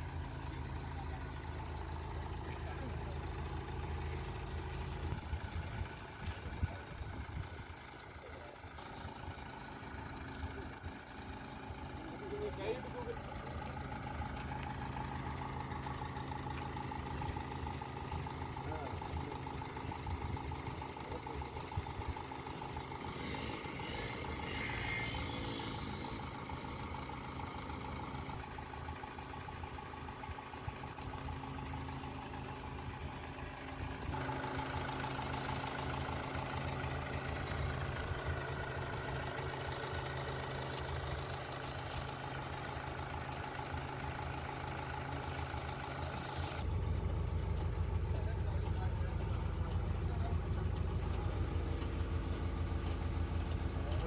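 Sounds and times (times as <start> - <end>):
diesel truck engine idling: 0.0 - 54.0.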